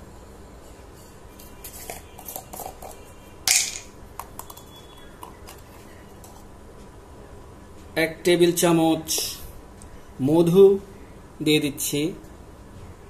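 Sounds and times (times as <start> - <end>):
spoon and containers clicking: 1.7 - 6.4.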